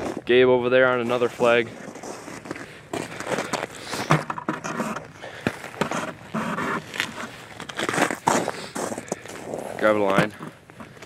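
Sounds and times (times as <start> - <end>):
footsteps crunching on snow: 0.9 - 4.1, 4.8 - 11.0
person breathing hard: 2.6 - 4.2, 5.1 - 5.8, 8.3 - 9.8.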